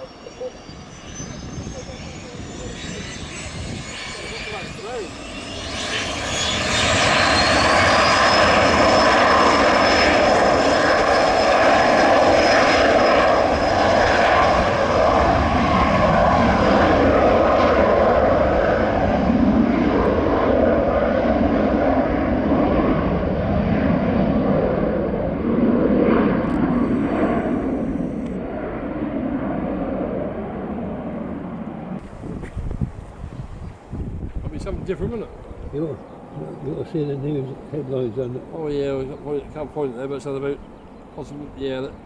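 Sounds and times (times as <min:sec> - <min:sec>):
high engine whine: 0:00.0 - 0:42.0
jet engines spooling up: 0:00.0 - 0:42.0.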